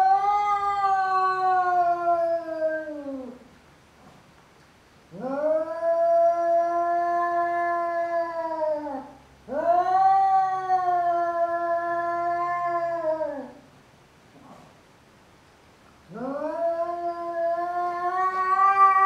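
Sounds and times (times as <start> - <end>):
cat yowling: 0.0 - 3.4, 5.1 - 13.6, 16.1 - 19.0.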